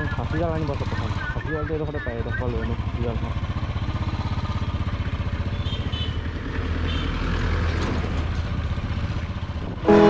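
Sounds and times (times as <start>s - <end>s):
single-cylinder engine idling: 0.0s - 6.4s.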